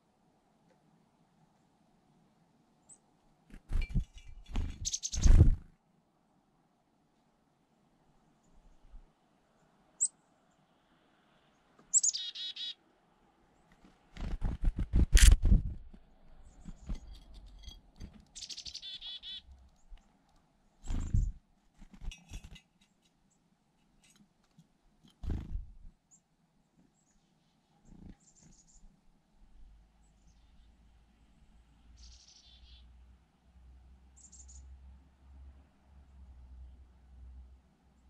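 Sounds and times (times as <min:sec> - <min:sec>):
chickadees calling: 0:04.6 - 0:05.5, 0:11.9 - 0:12.8, 0:18.3 - 0:19.6, 0:32.0 - 0:32.9.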